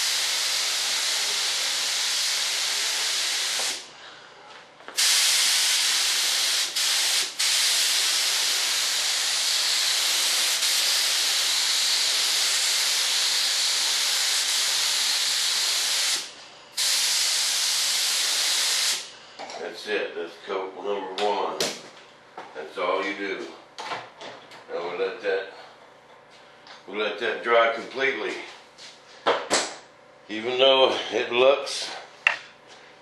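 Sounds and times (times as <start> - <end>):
spray gun hissing: 0.0 - 3.9, 5.0 - 19.1.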